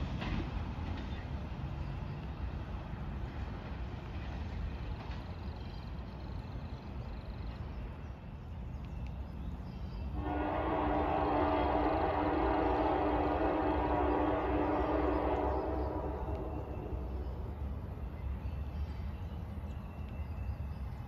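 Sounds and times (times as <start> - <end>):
locomotive rumble: 0.0 - 21.0
train air horn blast: 10.2 - 17.5.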